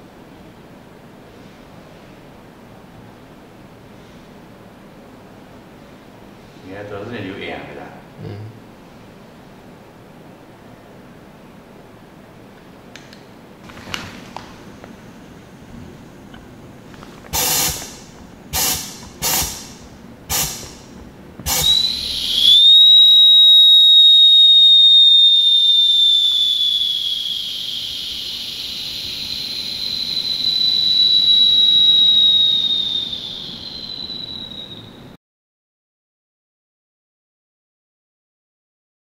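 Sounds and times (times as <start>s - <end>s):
short oxygen hisses: 17.3s - 22.5s
high whistle alarm: 21.5s - 35.2s.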